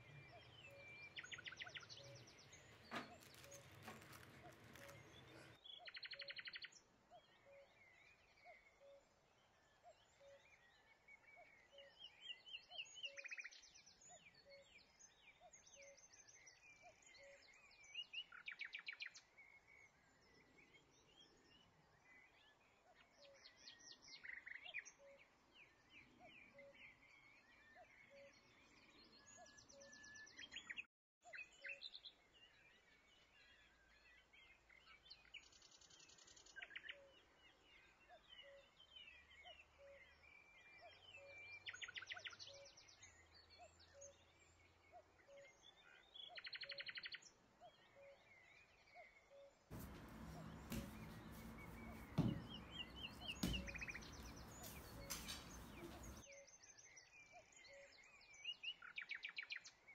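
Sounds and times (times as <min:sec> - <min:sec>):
birds chirping: 0:00.0 - 0:05.6, 0:49.7 - 0:56.3
sharp knocks: 0:49.7 - 0:56.2.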